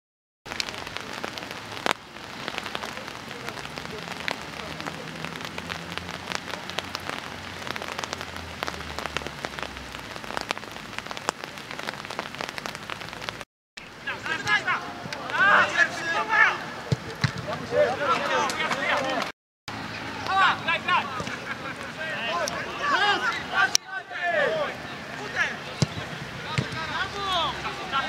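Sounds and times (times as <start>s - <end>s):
rain pattering: 0.4s - 28.0s.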